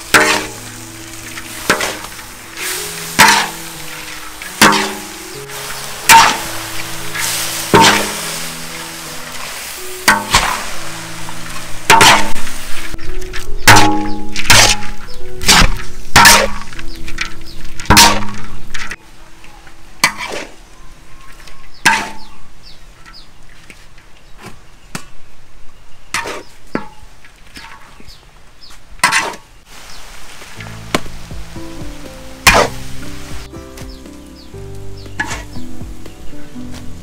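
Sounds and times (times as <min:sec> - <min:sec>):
background music: 0:00.0 - 0:19.7, 0:30.5 - 0:37.0
metal utensil clinking on pan: 0:01.4 - 0:05.1.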